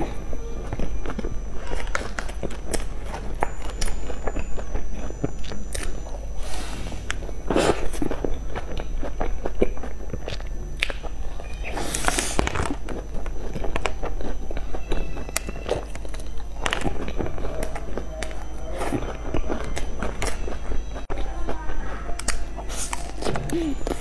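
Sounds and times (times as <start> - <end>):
chewing: 0.0 - 24.0.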